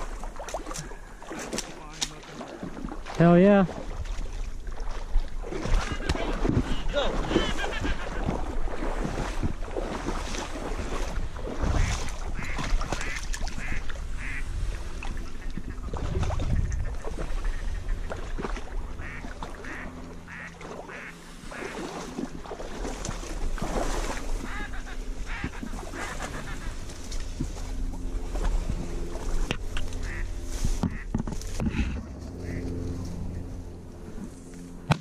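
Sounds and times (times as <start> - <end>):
wading through marsh water: 0.0 - 35.0
duck quacks: 11.7 - 14.5, 19.0 - 21.8, 24.4 - 26.8, 30.0 - 31.1, 32.4 - 32.8.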